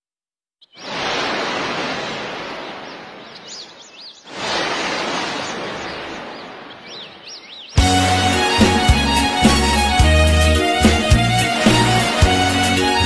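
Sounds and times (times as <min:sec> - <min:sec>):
bird chirping: 0:00.6 - 0:01.0, 0:02.6 - 0:04.3, 0:05.4 - 0:08.0
ocean waves breaking: 0:00.7 - 0:10.0, 0:10.6 - 0:13.0.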